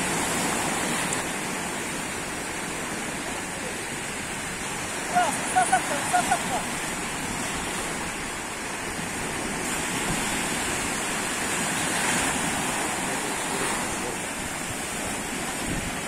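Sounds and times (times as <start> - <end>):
sea surf washing: 0.0 - 16.0
wind on microphone: 3.9 - 16.0.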